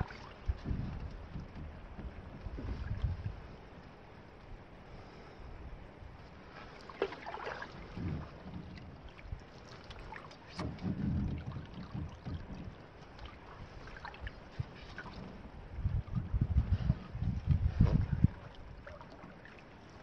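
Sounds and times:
wind noise on microphone: 0.0s - 3.7s, 7.8s - 9.5s, 10.5s - 12.9s, 13.5s - 19.0s
paddle splash: 0.0s - 5.5s, 6.1s - 20.0s
paddle swishing through water: 0.0s - 20.0s.

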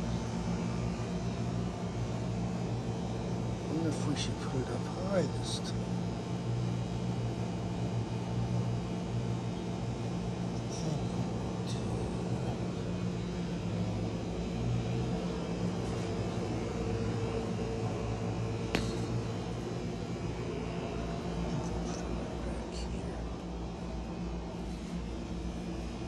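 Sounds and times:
low mechanical hum: 0.0s - 26.0s.

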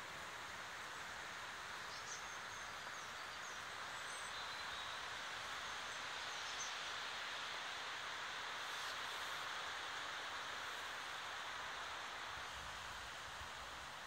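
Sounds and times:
faint bird chirps: 1.8s - 6.9s
river water rushing over stones: 6.8s - 14.0s.

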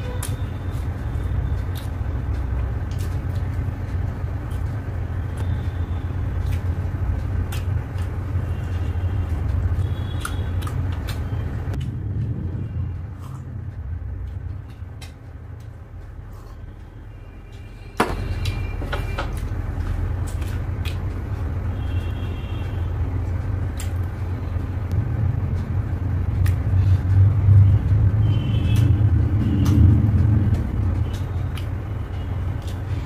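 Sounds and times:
steady low rumble: 0.0s - 33.0s
eating by hand clicks: 1.5s - 5.5s, 6.2s - 8.9s, 9.5s - 12.0s, 19.3s - 21.2s, 23.7s - 24.1s, 28.7s - 32.9s.

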